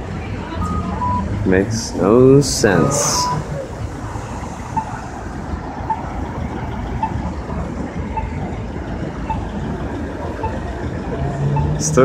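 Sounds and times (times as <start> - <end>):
street traffic: 0.0 - 12.0
crosswalk signal beeping: 0.4 - 12.0.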